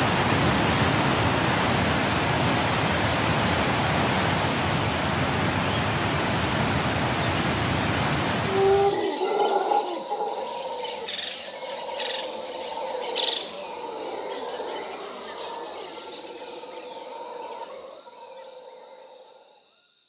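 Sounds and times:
insects chirring: 0:08.0 - 0:20.0.

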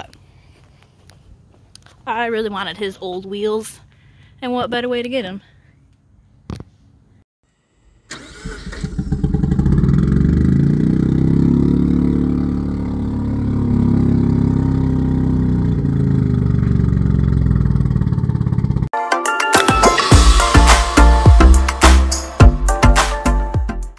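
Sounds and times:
rotary engine starting and running: 0:08.1 - 0:18.9
music: 0:19.0 - 0:23.9.

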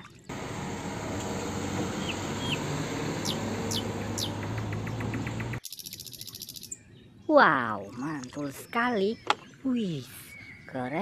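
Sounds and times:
truck engine hum: 0:00.2 - 0:05.6
bird-like chirps: 0:03.2 - 0:11.0.

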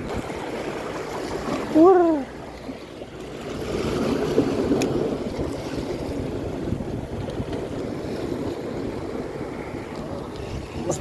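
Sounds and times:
waves splashing against rocks: 0:00.0 - 0:11.0
wind on the microphone: 0:03.6 - 0:11.0.

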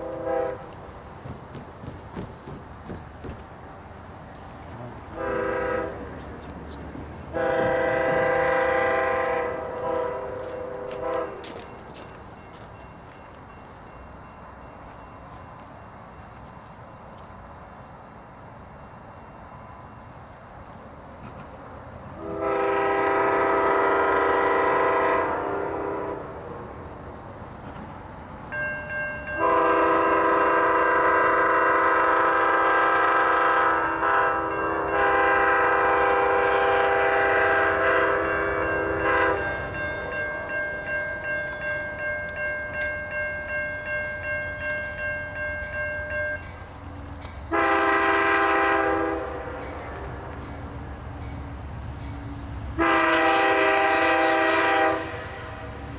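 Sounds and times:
locomotive air horn blasts: 0:00.0 - 0:00.7, 0:05.0 - 0:06.3, 0:07.3 - 0:11.5, 0:22.2 - 0:26.3, 0:29.4 - 0:39.8, 0:47.5 - 0:49.7, 0:52.8 - 0:55.7
crossing signal bell ringing: 0:07.2 - 0:16.8, 0:28.4 - 0:53.0.

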